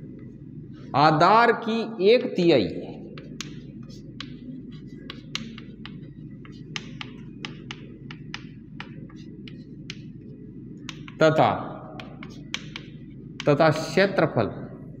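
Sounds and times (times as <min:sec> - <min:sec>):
steady low hum: 0:00.0 - 0:15.0
chalk tapping on blackboard: 0:03.2 - 0:11.2, 0:12.0 - 0:13.6.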